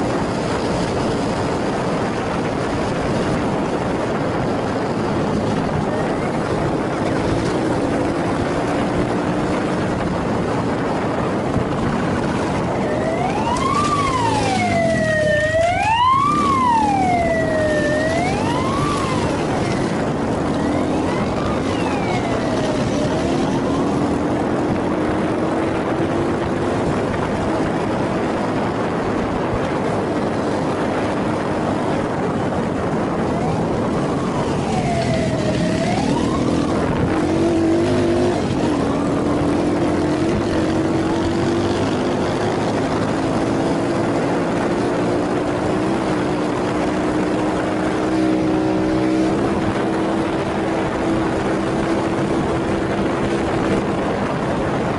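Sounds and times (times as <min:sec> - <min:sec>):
wind rush on microphone: 0:00.0 - 0:54.9
police siren wailing: 0:04.5 - 0:08.5, 0:12.4 - 0:26.0, 0:32.9 - 0:54.9
motorcycle engine running: 0:35.3 - 0:54.9.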